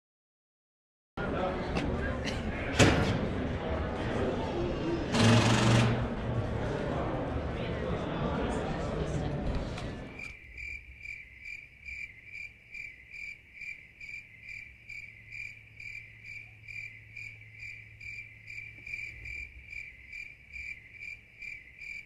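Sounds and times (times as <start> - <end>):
cricket chirping: 10.1 - 22.0.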